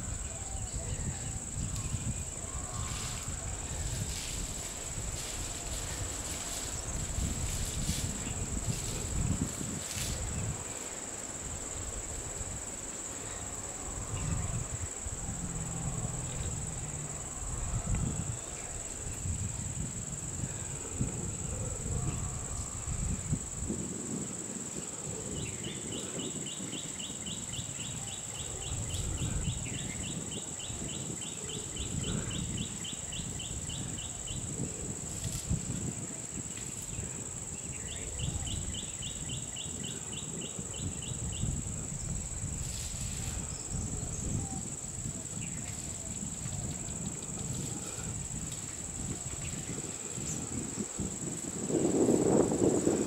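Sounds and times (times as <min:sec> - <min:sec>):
insects droning: 0:00.0 - 0:53.0
low rumbling noise: 0:13.3 - 0:23.7.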